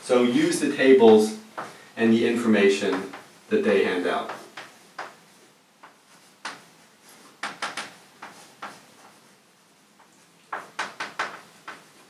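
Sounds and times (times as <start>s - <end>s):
chalk writing on chalkboard: 4.2s - 9.4s.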